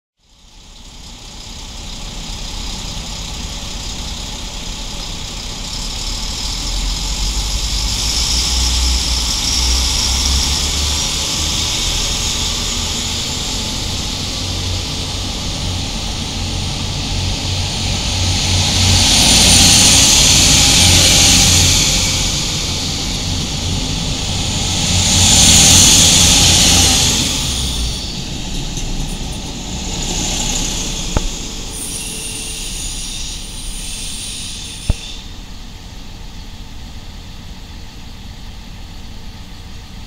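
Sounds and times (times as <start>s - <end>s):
train diesel engine rumble: 0.2s - 40.0s.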